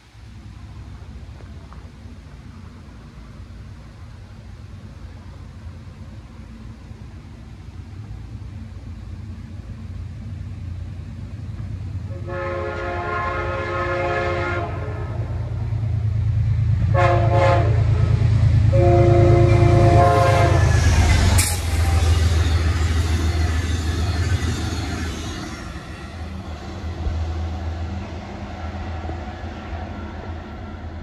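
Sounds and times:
diesel engine rumble: 0.0s - 31.0s
train cars rolling past: 0.0s - 31.0s
train horn blasts: 12.1s - 15.5s, 16.9s - 26.0s.

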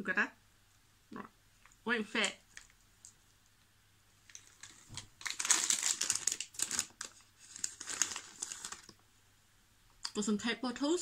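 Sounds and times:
plastic sweet bag crinkling: 2.2s - 3.2s, 4.2s - 9.0s.

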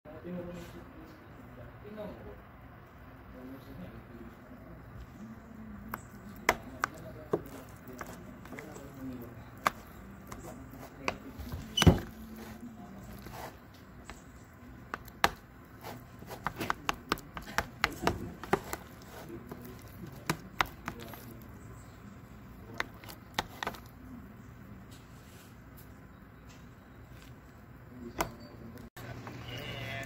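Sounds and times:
spoon scraping plastic container: 6.0s - 14.3s, 14.9s - 21.5s, 22.7s - 24.0s.

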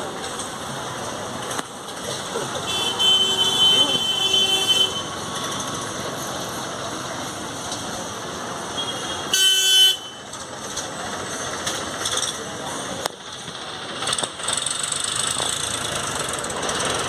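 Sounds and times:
street traffic: 0.0s - 17.0s
vehicle horns honking: 2.6s - 5.3s, 8.7s - 10.3s.

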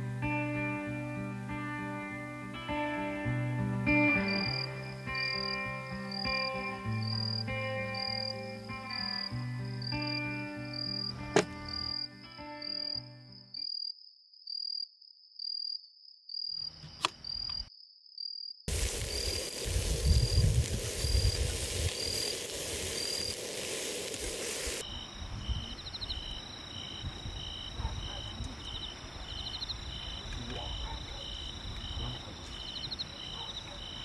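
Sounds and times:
crickets chirping: 3.9s - 34.0s
vegetables sizzling in a pot: 18.7s - 24.8s.

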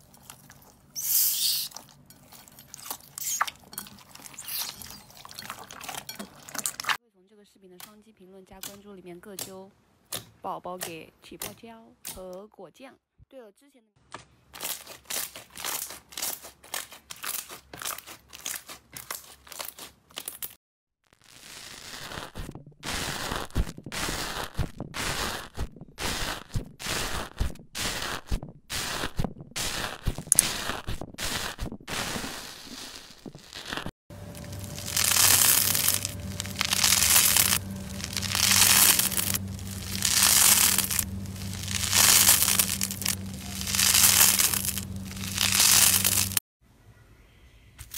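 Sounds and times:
slime squishing: 0.0s - 7.0s, 34.3s - 46.4s
crunchy slime crackling: 14.6s - 20.5s, 33.5s - 46.4s
foam slime crackling snaps: 33.5s - 46.4s.

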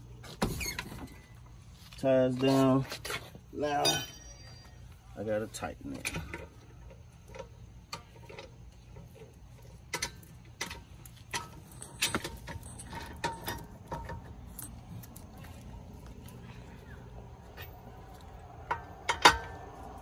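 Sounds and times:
lug wrench clinking on lug nuts: 6.0s - 15.4s, 17.5s - 20.0s.

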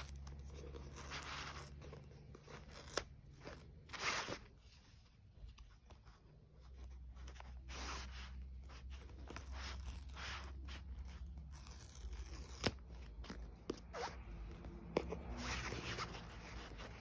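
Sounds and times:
paper strip ripping: 9.3s - 12.9s.

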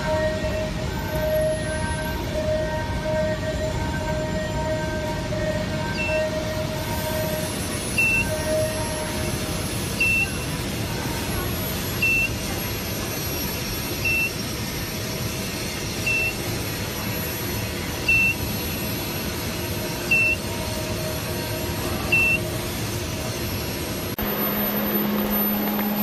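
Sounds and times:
faint high whine: 0.0s - 26.0s
machine cooling hum: 0.0s - 26.0s
short high beeps: 8.0s - 8.7s, 10.0s - 10.4s, 12.0s - 12.4s, 16.1s - 16.4s, 20.1s - 20.5s, 22.1s - 22.4s.

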